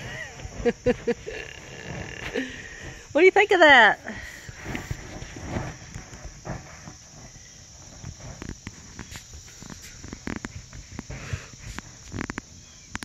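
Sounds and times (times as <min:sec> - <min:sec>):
insects calling: 0:00.0 - 0:13.0
hoof thumps on dirt: 0:04.4 - 0:13.0.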